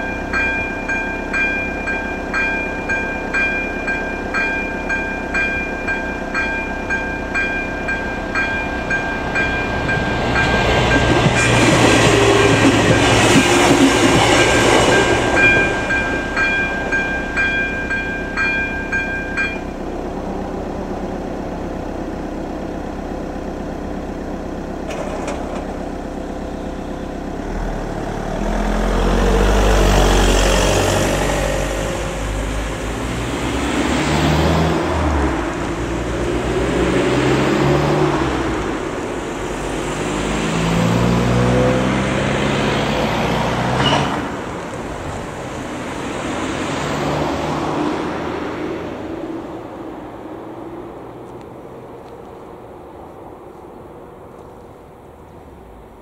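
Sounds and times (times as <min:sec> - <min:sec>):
level crossing bell ringing: 0:00.0 - 0:13.3, 0:14.1 - 0:19.9
car engine pulling away: 0:00.0 - 0:56.0
railcar passing: 0:00.0 - 0:56.0.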